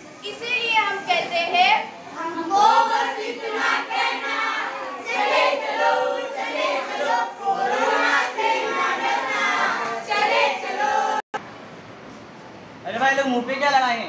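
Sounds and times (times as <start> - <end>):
children singing together: 2.5 - 11.2.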